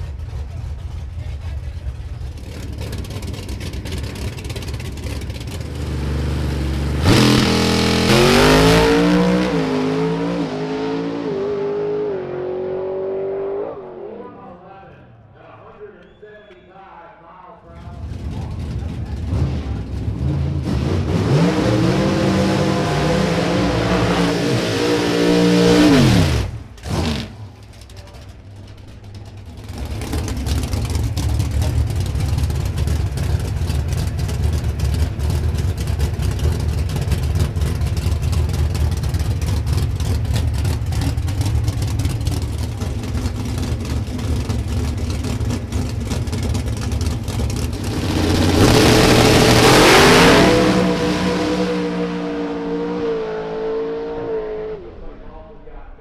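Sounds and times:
engines revving: 0.0 - 14.6, 17.7 - 55.6
drag racing engines rumbling: 0.0 - 56.0.

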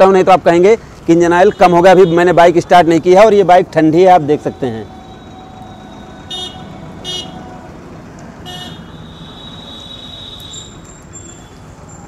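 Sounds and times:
street traffic: 0.0 - 12.0
high-pitched vehicle horns: 4.3 - 7.5, 8.4 - 11.6.

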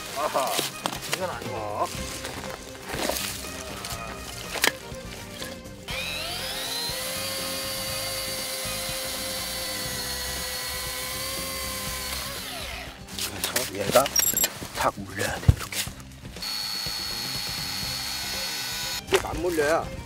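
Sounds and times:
background music: 0.0 - 20.0
chainsaw cutting ice: 5.9 - 13.7, 16.4 - 19.2.

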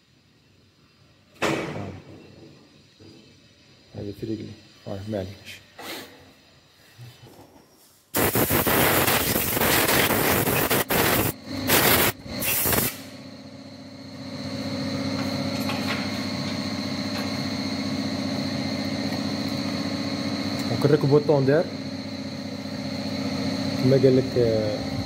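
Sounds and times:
loud rushing hiss: 8.1 - 13.2
machine running with high whine: 8.2 - 25.0.

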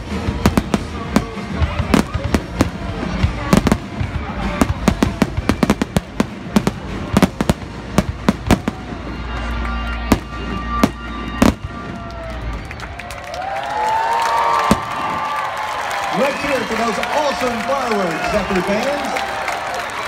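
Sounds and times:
firework bangs: 0.0 - 12.8, 14.5 - 15.7
music playing: 0.0 - 20.0.

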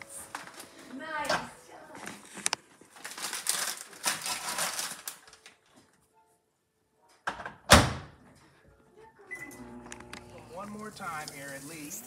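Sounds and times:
plastic bag crinkling: 2.0 - 5.8.

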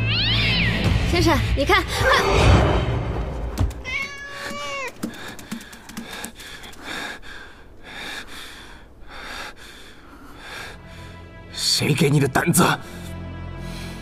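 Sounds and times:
cat meowing: 0.0 - 0.8, 3.8 - 5.0.

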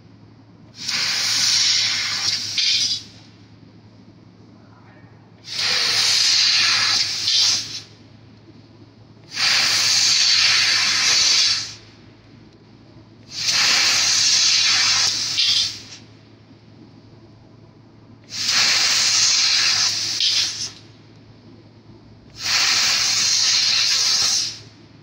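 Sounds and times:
low steady hum: 0.0 - 1.2, 1.8 - 6.0, 7.6 - 9.9, 11.6 - 14.0, 15.8 - 18.4, 20.7 - 22.5, 24.5 - 25.0
laser cutter hissing on metal: 0.8 - 3.2, 5.4 - 7.9, 9.3 - 11.8, 13.3 - 16.0, 18.3 - 20.8, 22.4 - 24.6.

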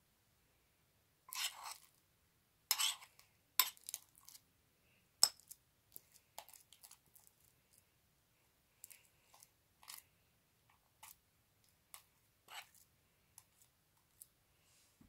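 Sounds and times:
spoon scraping a ceramic bowl: 1.3 - 1.9, 2.7 - 4.4, 11.9 - 12.8.

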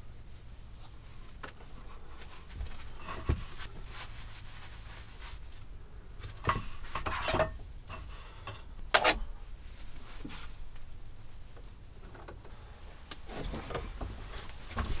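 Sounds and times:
fabric rustling: 0.0 - 8.4, 9.4 - 11.9, 12.6 - 15.0.

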